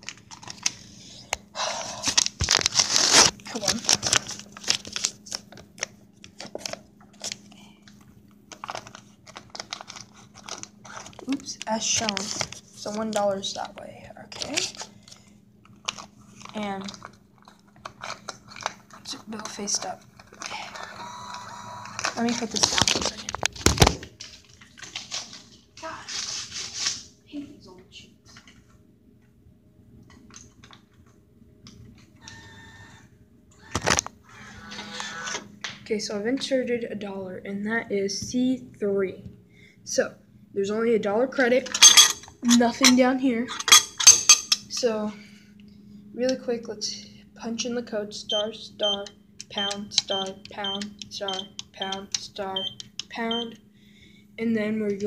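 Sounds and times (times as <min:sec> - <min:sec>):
paper bill crinkling: 0:00.0 - 0:01.2, 0:01.9 - 0:07.5, 0:08.5 - 0:13.7, 0:14.3 - 0:20.7, 0:21.9 - 0:25.5
low steady hum: 0:00.0 - 0:55.0
bill acceptor motor whine: 0:32.1 - 0:35.5.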